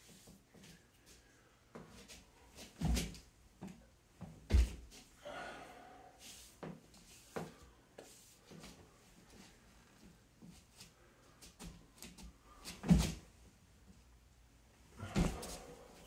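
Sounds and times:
bare feet thumping on floor: 0:04.5 - 0:04.9, 0:15.0 - 0:15.7.

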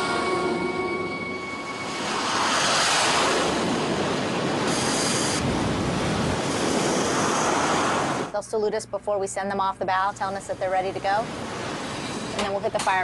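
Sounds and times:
jet engines roaring: 0:00.0 - 0:08.3.

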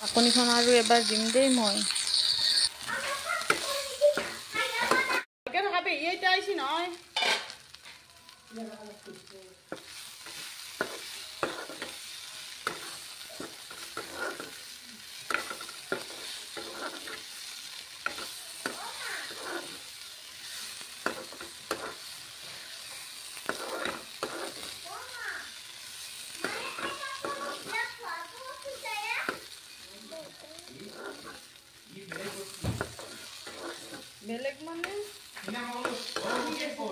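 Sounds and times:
metal spoon scraping wok: 0:00.0 - 0:05.2, 0:07.1 - 0:07.7, 0:09.7 - 0:28.0, 0:30.6 - 0:36.9
greens sizzling in oil: 0:00.0 - 0:36.9
spoon clacking against pan: 0:09.7 - 0:12.0, 0:12.6 - 0:14.6, 0:15.2 - 0:17.3, 0:21.0 - 0:22.1.

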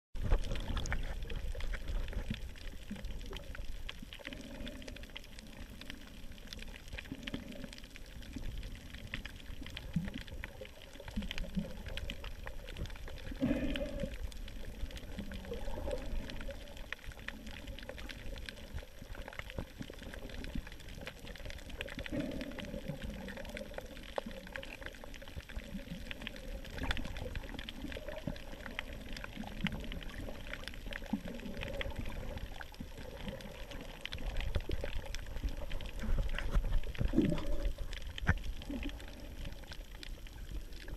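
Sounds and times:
faint clicks: 0:00.2 - 0:40.9
muffled underwater gurgling: 0:00.2 - 0:40.9.

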